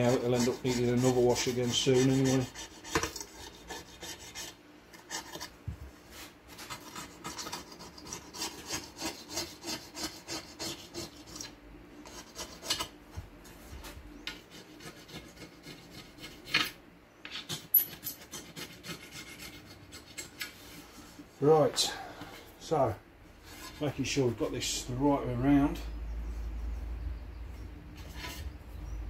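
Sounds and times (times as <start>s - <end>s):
knife blade scraping a surface: 23.4s - 24.0s, 28.0s - 28.6s.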